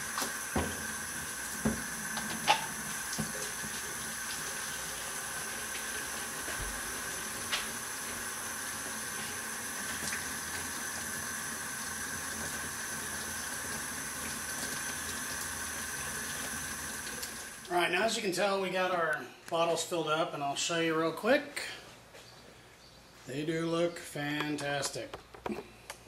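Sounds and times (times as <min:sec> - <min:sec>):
water filling plastic bottle: 0:00.0 - 0:17.8
water running from faucet: 0:00.0 - 0:17.9.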